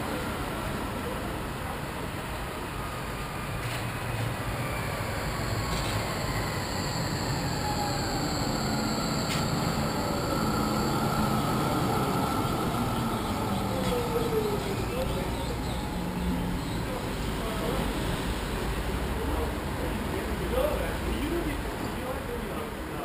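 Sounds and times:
tram rumbling: 0:00.0 - 0:23.0
tram motor whine: 0:02.6 - 0:17.9.

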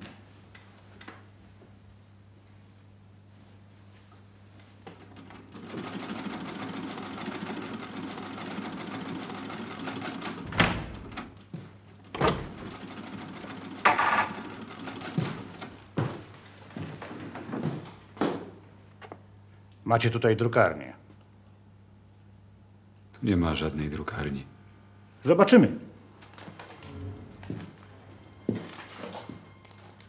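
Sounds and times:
sewing machine running: 0:05.0 - 0:11.3, 0:12.3 - 0:15.8.

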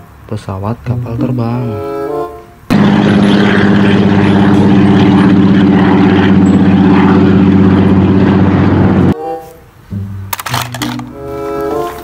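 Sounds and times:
propeller engine drone: 0:02.1 - 0:09.2.

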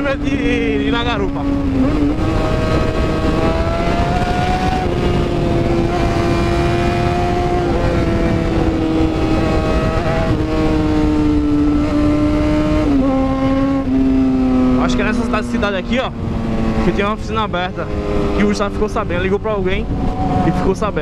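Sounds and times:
motorcycle engine cruising: 0:00.0 - 0:21.0
wind rush on microphone: 0:00.0 - 0:21.0.

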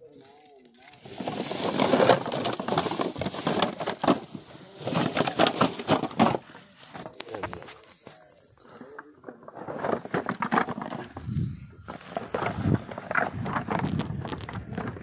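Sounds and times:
cloth sack rustling and crackling: 0:01.0 - 0:06.8.

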